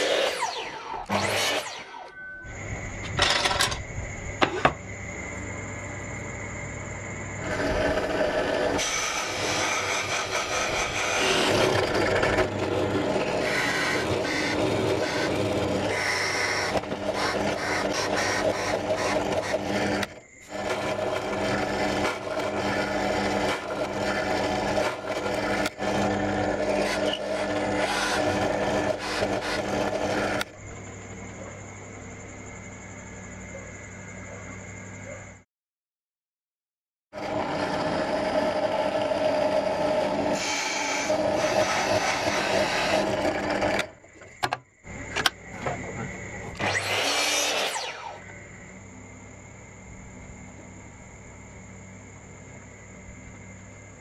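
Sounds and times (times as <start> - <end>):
power drill grinding into wood: 0.0 - 2.1, 7.4 - 30.5, 37.2 - 43.9, 46.5 - 48.3.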